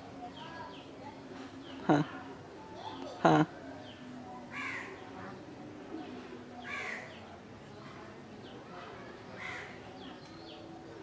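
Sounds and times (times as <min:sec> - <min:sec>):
small birds chirping: 0:02.8 - 0:11.0
crow cawing: 0:09.4 - 0:09.8.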